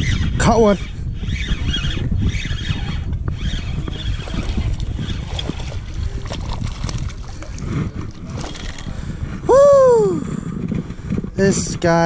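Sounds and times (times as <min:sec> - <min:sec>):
fishing reel cranking: 0:00.0 - 0:09.1
wind on microphone: 0:00.0 - 0:12.0
water lapping against boat: 0:02.2 - 0:09.4.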